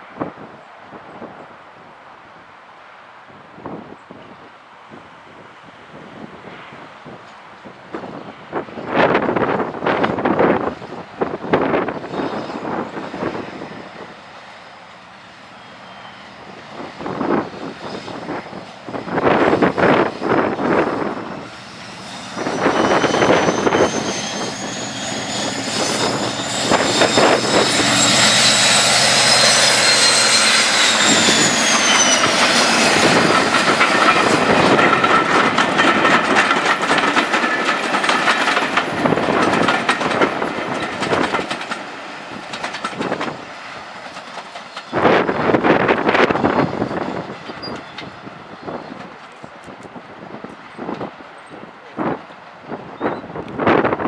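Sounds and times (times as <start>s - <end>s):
diesel locomotive engine passing: 0.0s - 54.0s
train wheels clicking over rail joints: 18.6s - 52.6s
high whine falling in pitch: 22.3s - 34.8s.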